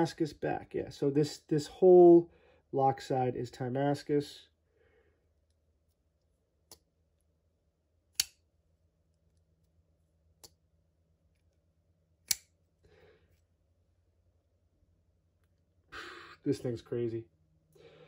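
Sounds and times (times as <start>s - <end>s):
folding knife clicking: 8.2s - 8.4s, 12.2s - 12.5s.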